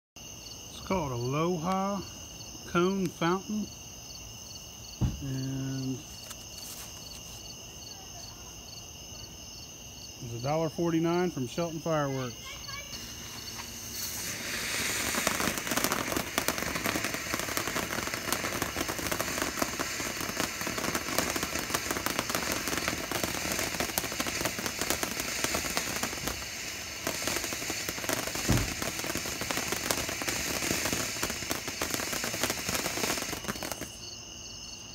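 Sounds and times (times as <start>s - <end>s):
firework fountain crackling hiss: 0.2s - 34.3s
deep thump: 5.0s - 5.4s, 28.4s - 28.8s.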